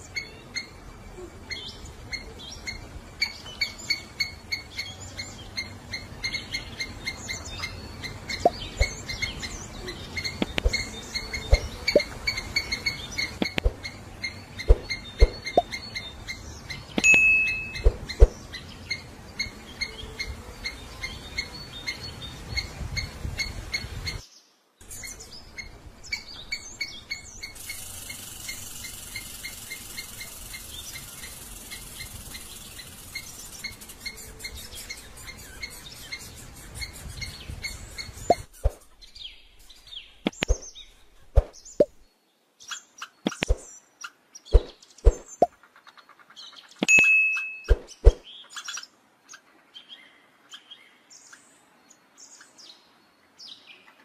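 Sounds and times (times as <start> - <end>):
squirrel chirping: 0.0 - 0.8, 1.5 - 24.2, 24.8 - 42.0
sharp clicks and taps: 10.4 - 10.8, 13.4 - 13.8.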